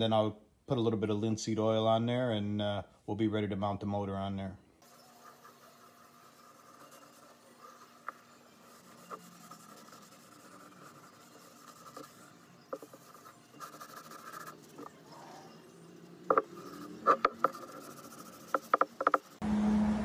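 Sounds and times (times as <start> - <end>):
cloth rag rubbing wood: 4.8 - 19.4.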